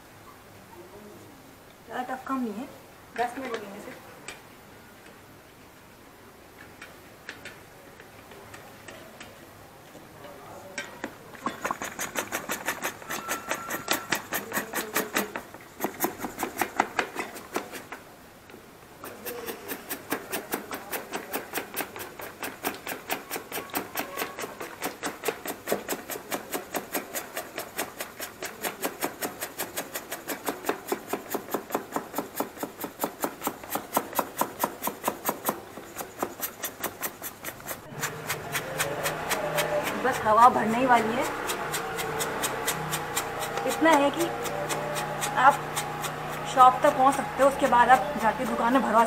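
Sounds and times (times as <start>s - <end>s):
hand bicycle pump strokes: 11.4s - 18.0s, 19.0s - 49.0s.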